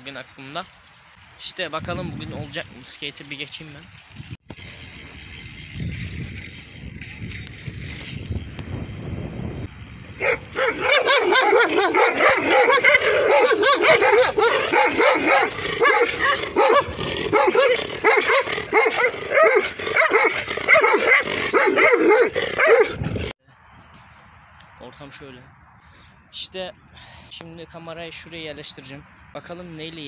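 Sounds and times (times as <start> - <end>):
dog barking: 10.2 - 23.0.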